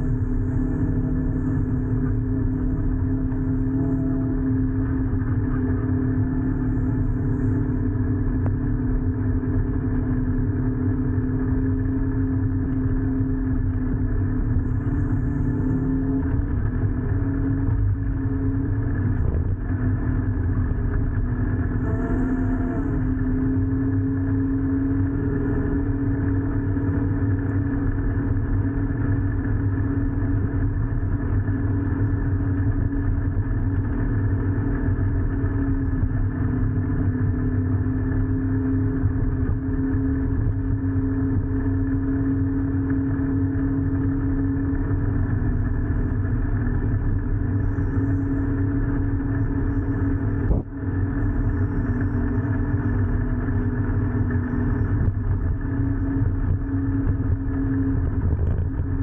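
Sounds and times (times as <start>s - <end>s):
vehicle engine humming: 0.0s - 59.0s.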